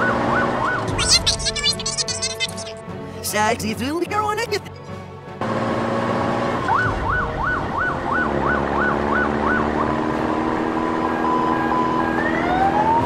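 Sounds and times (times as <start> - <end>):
police siren wailing: 0.0 - 1.6, 6.6 - 13.0
engine drone: 5.3 - 13.0.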